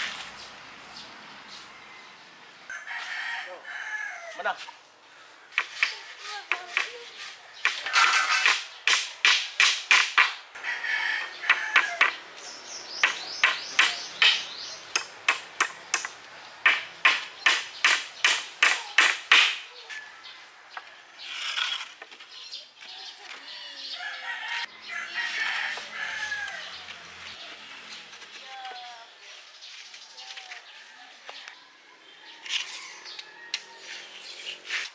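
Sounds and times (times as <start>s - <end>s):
hammer driving nails into wood: 7.6s - 10.4s, 16.7s - 19.6s.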